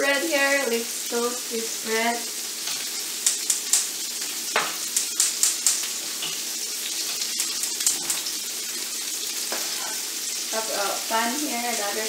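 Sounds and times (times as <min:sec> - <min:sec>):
patties sizzling in a pan: 0:00.0 - 0:12.0
fat popping and crackling: 0:02.7 - 0:06.4, 0:07.1 - 0:08.4.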